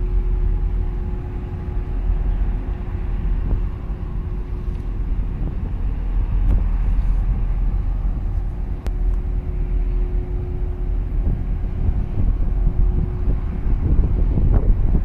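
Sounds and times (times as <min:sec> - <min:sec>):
faint steady hum: 0:00.0 - 0:15.0
ship engine drone: 0:00.0 - 0:15.0
wind rumbling on microphone: 0:00.0 - 0:15.0.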